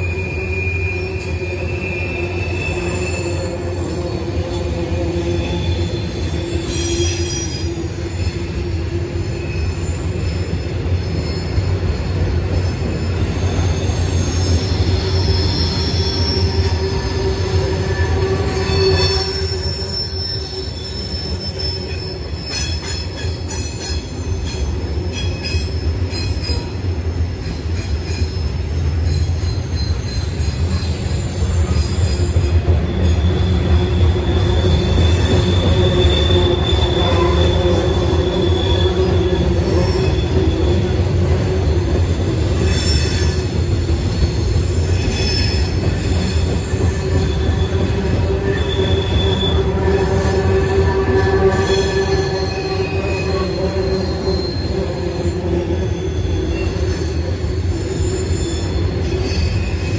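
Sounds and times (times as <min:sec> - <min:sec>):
rumble of wheels on rail: 0:00.0 - 0:59.9
wheels squealing: 0:09.2 - 0:24.4, 0:42.6 - 0:59.9.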